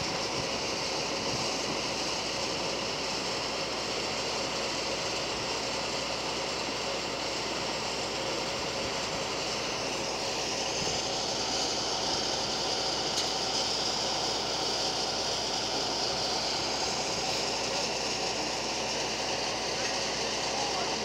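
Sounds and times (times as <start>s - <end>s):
high hiss: 8.7s - 21.0s.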